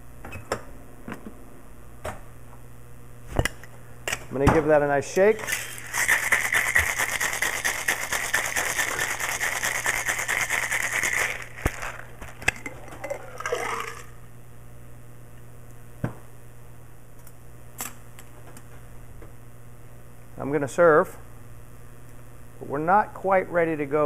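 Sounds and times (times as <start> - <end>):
drink pouring into glass: 5.4 - 14.2
ice rattling in cocktail shaker: 5.4 - 14.2.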